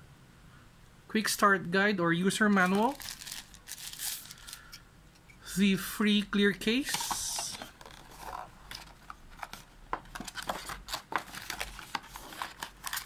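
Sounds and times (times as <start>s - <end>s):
plastic crinkle: 2.5s - 4.8s, 6.9s - 13.0s
cardboard clicks and scrapes: 6.9s - 13.0s.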